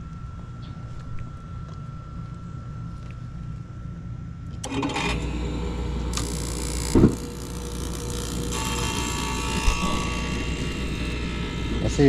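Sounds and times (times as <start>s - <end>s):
low motor hum: 0.0s - 12.0s
gas burners running: 4.4s - 12.0s
gas burners igniting with whoomp: 4.6s - 12.0s.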